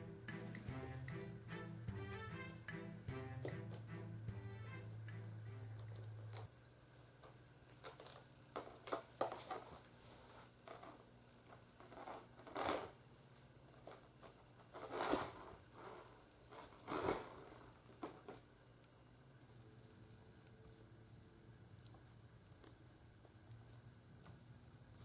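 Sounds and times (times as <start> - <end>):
fabric rustling and scratching: 11.7 - 13.0, 13.8 - 18.3.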